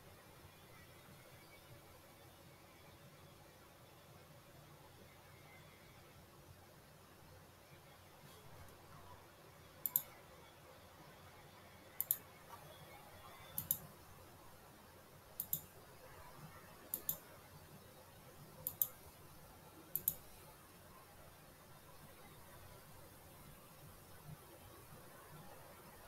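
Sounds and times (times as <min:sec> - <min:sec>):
computer mouse clicking: 0:09.8 - 0:10.2, 0:12.0 - 0:12.2, 0:13.5 - 0:13.9, 0:15.4 - 0:15.8, 0:16.9 - 0:17.3, 0:18.6 - 0:19.0, 0:19.9 - 0:20.3.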